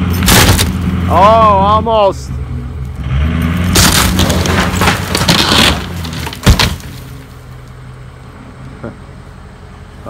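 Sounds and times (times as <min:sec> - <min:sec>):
truck engine pulling hard: 0:00.0 - 0:10.0
wood cracking and splintering: 0:00.2 - 0:00.8, 0:03.6 - 0:07.4.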